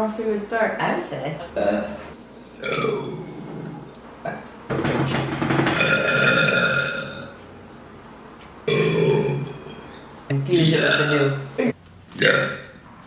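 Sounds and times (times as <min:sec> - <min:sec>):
woman burping: 0:02.6 - 0:04.4, 0:05.8 - 0:07.4, 0:08.7 - 0:10.0, 0:12.2 - 0:12.7.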